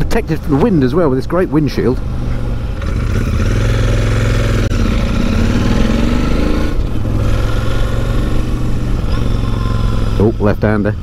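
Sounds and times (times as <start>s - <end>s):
motorcycle engine running: 2.0s - 11.0s.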